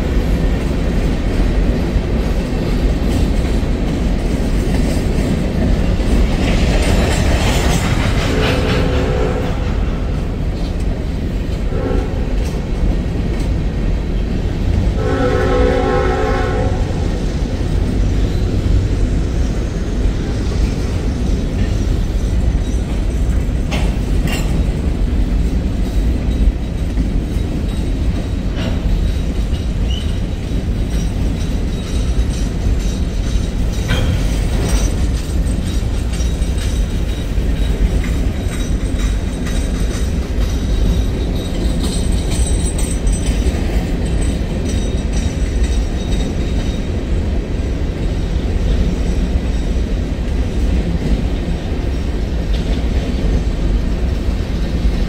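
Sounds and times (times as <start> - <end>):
train wheels rumbling on rail: 0.0 - 55.0
freight car clanks: 30.8 - 46.7.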